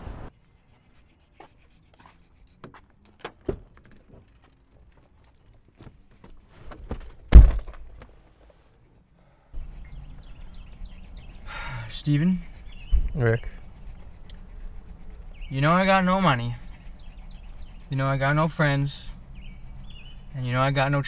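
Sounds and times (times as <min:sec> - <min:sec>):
car door opening: 0:02.6 - 0:04.6
clicks knocks and rustling: 0:02.7 - 0:08.2
car door shutting thunk: 0:06.9 - 0:08.0.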